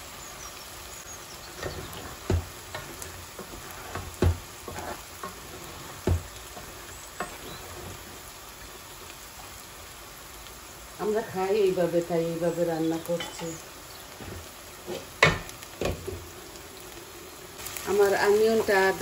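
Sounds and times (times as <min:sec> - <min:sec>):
frying sizzle: 0:00.0 - 0:19.0
wooden spoon knocking on pot: 0:01.6 - 0:07.5
spoon scraping pot: 0:01.6 - 0:08.0.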